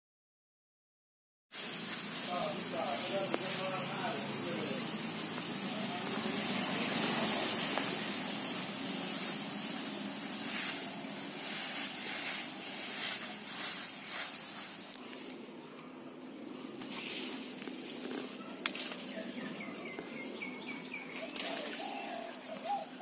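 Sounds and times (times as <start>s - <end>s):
bare feet shuffling through rice: 1.6s - 15.3s.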